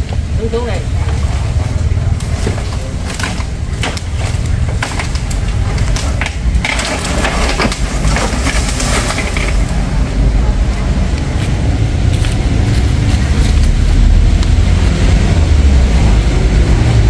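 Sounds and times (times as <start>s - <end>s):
steady low rumble: 0.0s - 17.0s
wood cracking and snapping: 1.0s - 9.9s.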